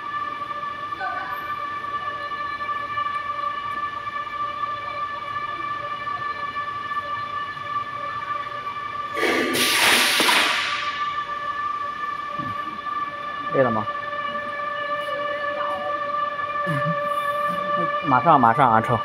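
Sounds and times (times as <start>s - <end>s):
loud hiss: 9.2s - 10.9s
conveyor motor whining: 10.6s - 19.0s.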